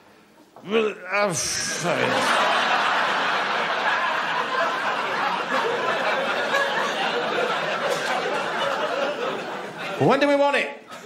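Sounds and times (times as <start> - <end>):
audience laughing: 1.5 - 10.0.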